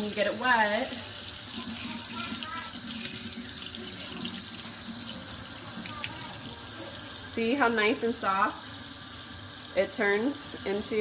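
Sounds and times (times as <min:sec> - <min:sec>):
faucet water splashing into sink: 0:00.0 - 0:11.0.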